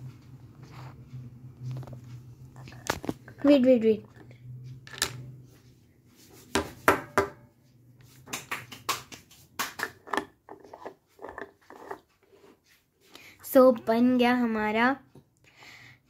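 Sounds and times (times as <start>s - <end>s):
spoon scraping small jar: 10.0s - 12.5s.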